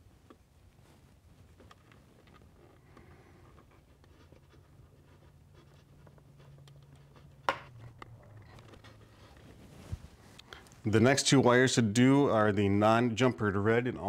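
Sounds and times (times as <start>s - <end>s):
wires scratching and clicking: 1.5s - 10.9s.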